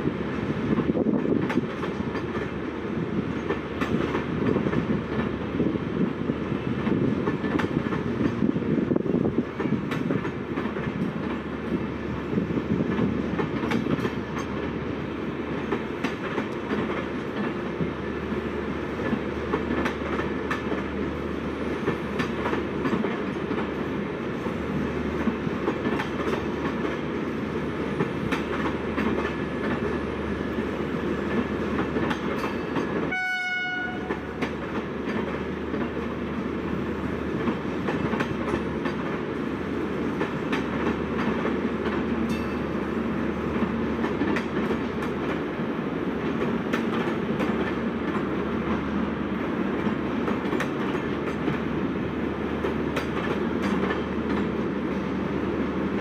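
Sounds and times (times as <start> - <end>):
train wheels rumbling and clicking: 0.0 - 56.0
short high-pitched train horn: 33.1 - 34.3.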